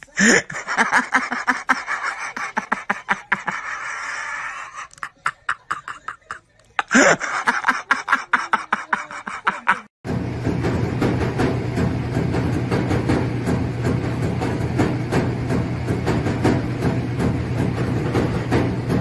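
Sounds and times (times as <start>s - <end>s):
person laughing breathily: 0.0s - 9.9s
drumming on plastic buckets: 10.1s - 19.0s.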